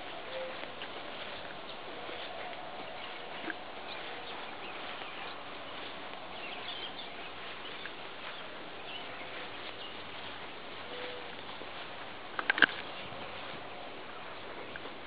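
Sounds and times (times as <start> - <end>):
faint ticks and chirps: 0.0 - 15.0
outdoor background hiss: 0.0 - 15.0.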